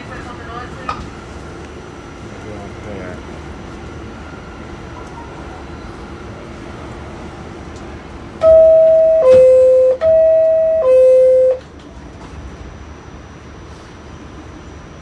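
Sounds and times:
two-note door chime: 8.4 - 11.6.

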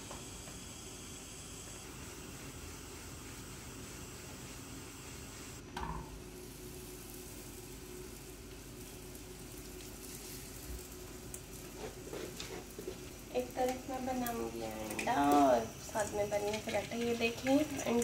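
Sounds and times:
food sizzling in a pan: 6.2 - 18.0.

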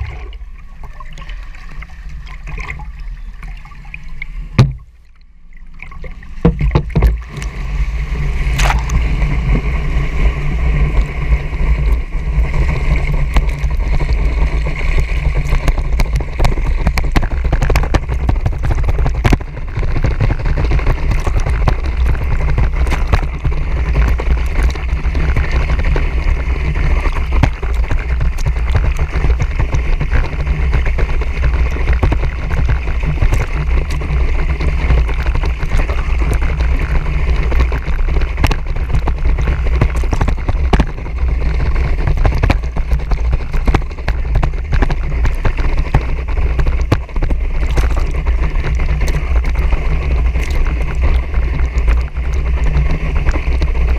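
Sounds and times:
steady low rumble: 0.0 - 53.9
sharp knock: 4.6 - 4.9
rushing water spray: 5.8 - 53.9
wind buffeting camera: 6.5 - 53.9.

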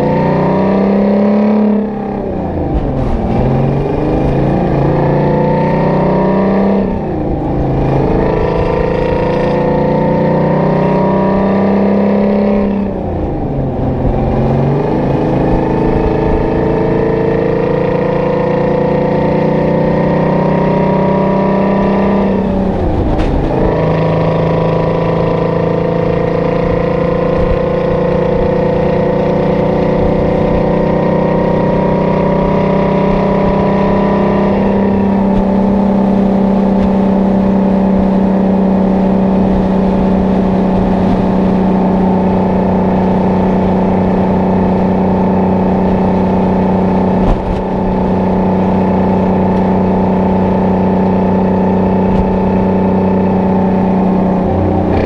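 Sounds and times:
diesel truck engine under load: 0.0 - 55.0
short thump: 47.2 - 47.7.

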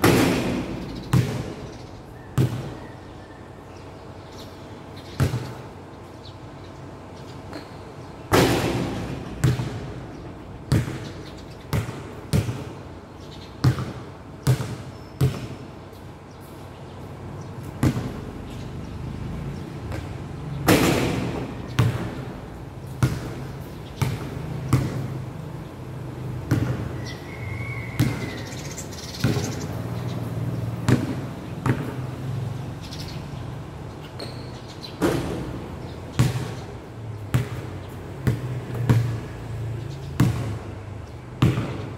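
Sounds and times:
basketball bouncing on court: 0.0 - 1.6, 2.4 - 2.8, 5.2 - 5.7, 7.5 - 12.8, 13.6 - 15.6, 17.6 - 18.4, 19.8 - 25.3, 26.0 - 32.4, 34.1 - 41.9.

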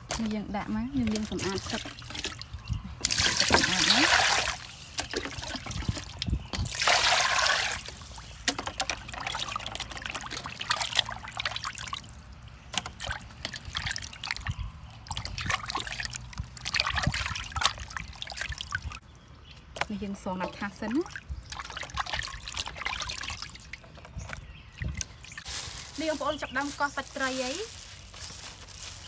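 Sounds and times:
water splashing in a metal bowl: 0.1 - 19.0, 21.0 - 25.2
water pouring: 1.0 - 12.2, 21.5 - 23.9.

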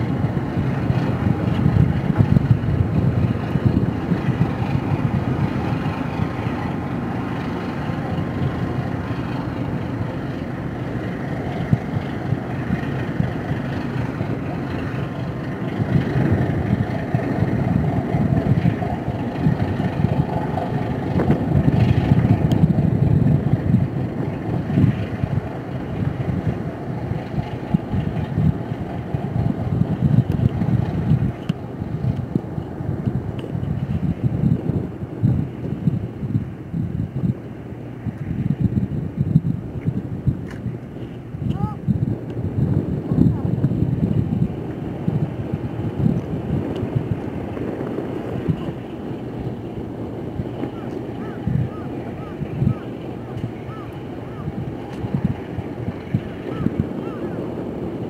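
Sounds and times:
boat engine rumbling: 0.0 - 58.0
wind buffeting microphone: 0.0 - 58.0.

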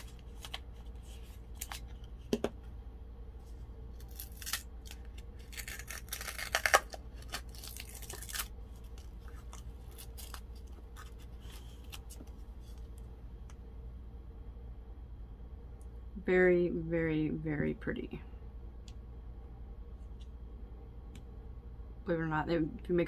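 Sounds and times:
seal tearing: 4.0 - 12.2.

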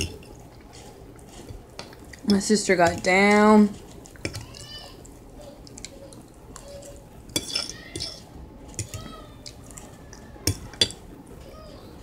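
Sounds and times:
fork clinking on ceramic plate: 7.3 - 8.2.

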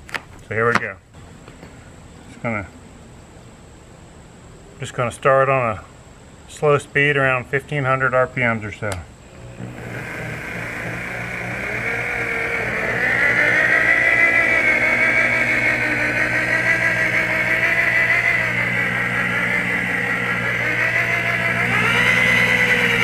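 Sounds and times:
rotary polisher motor whine: 9.3 - 23.0.

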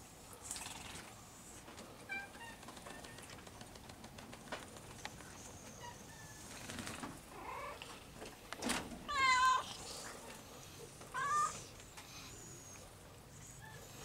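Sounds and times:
cat meowing: 11.2 - 11.7.

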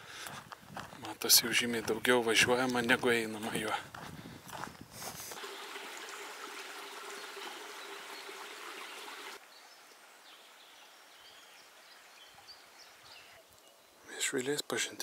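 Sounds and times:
stream flowing: 5.4 - 13.1.

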